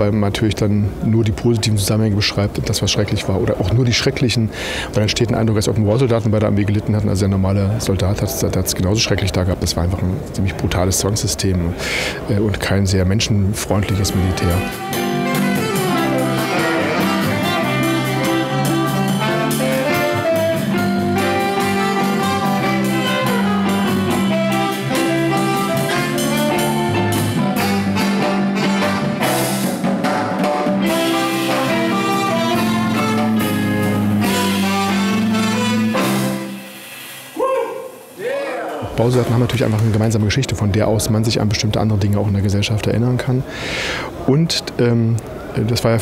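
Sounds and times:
jazz band playing live: 0:13.5 - 0:38.1
saxophone: 0:13.8 - 0:38.1
trumpet: 0:13.8 - 0:38.2.

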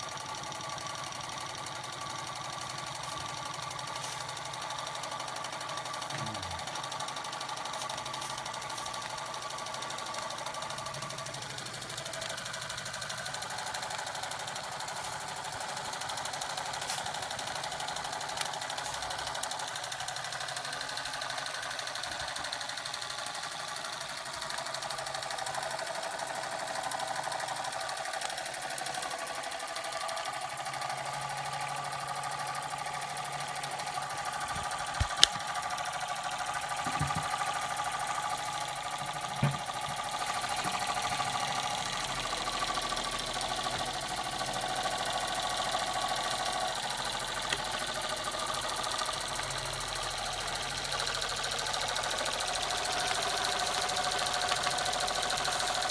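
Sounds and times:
toy steam engine running: 0:00.0 - 0:55.9
steam hissing: 0:02.3 - 0:11.7.

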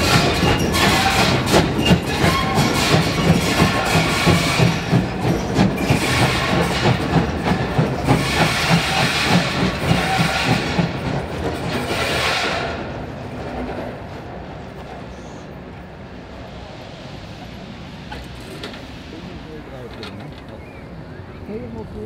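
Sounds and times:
loud steam hissing: 0:00.0 - 0:11.0, 0:15.1 - 0:21.5
steam locomotive chuffing: 0:00.0 - 0:13.4, 0:14.6 - 0:22.0.

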